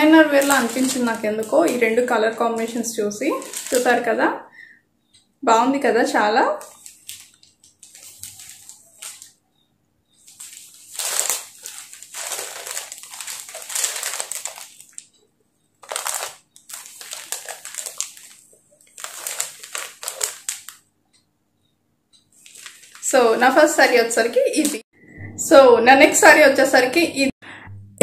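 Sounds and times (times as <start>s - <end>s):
fabric rustling and crinkling: 0.0s - 4.1s, 6.5s - 9.4s, 10.2s - 15.1s, 15.8s - 20.8s, 22.4s - 24.0s.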